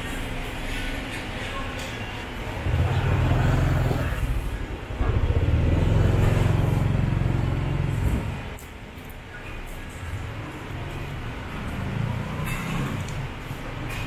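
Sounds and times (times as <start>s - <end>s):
motor vehicle engine rumble: 2.3s - 8.9s.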